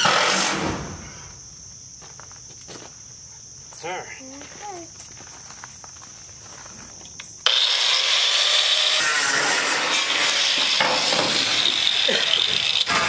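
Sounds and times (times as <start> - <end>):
power tool cutting metal: 7.4 - 13.0.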